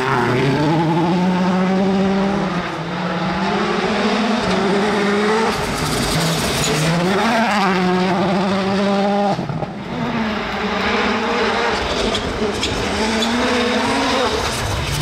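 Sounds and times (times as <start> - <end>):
rally car engine running hard: 0.0 - 15.0.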